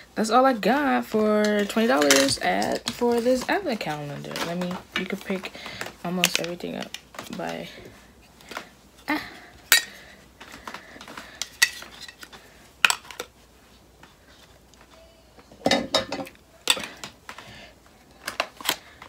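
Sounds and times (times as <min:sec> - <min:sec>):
cosmetic bottles clinking: 0:01.6 - 0:03.5.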